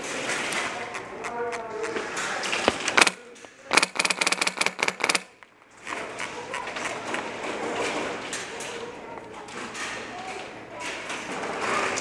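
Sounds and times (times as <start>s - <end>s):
airsoft rifle full-auto burst: 2.8s - 5.4s.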